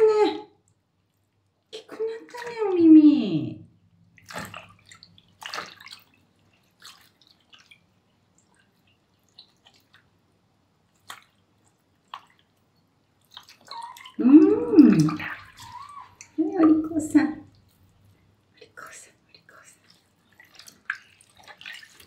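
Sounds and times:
water dripping and splashing: 0:00.6 - 0:03.0, 0:03.8 - 0:22.0.

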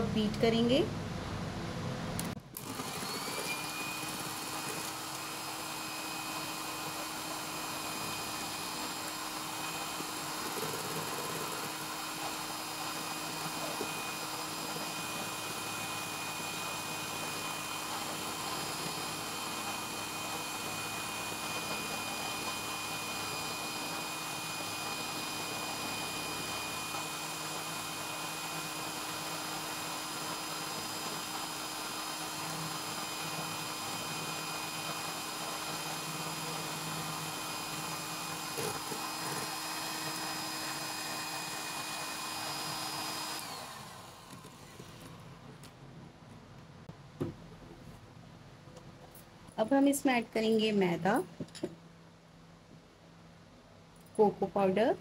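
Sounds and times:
electric hand mixer whisking: 0:02.5 - 0:45.2.

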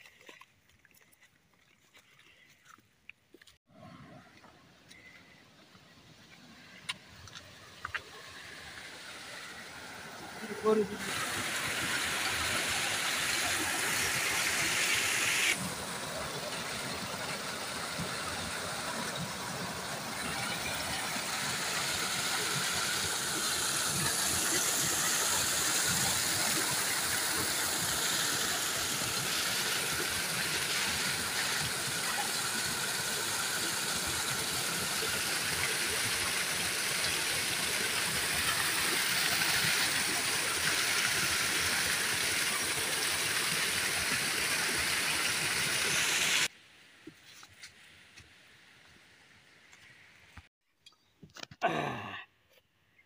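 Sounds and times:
water gushing over rocks: 0:06.8 - 0:46.6.

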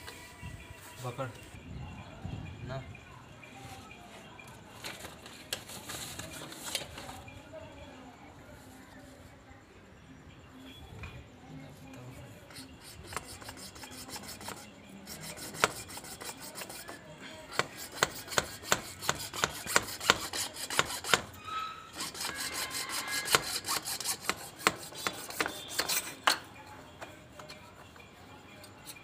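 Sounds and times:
scraping plastic pipe: 0:12.5 - 0:26.4.

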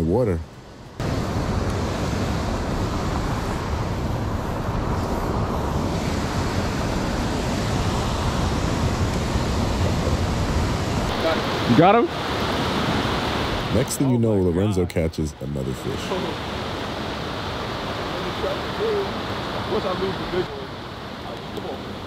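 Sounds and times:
wind buffeting microphone: 0:01.0 - 0:13.9.

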